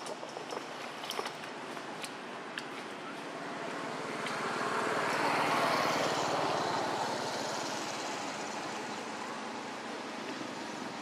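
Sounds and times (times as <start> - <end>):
road noise: 0.0 - 11.0
vehicle engine passing: 3.4 - 9.7.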